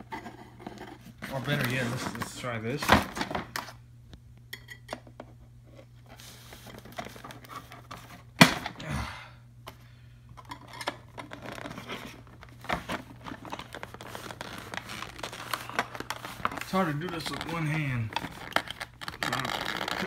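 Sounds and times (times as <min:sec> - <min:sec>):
packaging rustling and crinkling: 0:06.1 - 0:08.3, 0:10.9 - 0:20.0.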